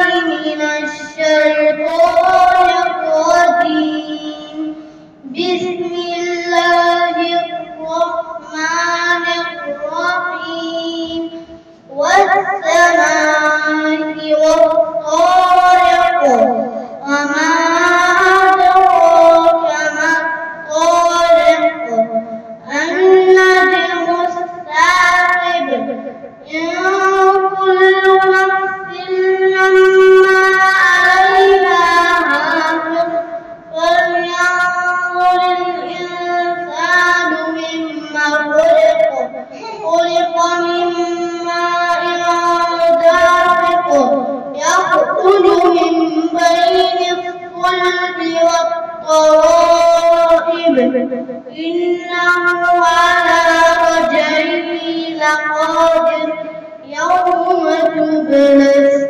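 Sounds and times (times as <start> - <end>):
boy chanting melodic recitation: 0.0 - 59.0
short breath: 4.8 - 5.2.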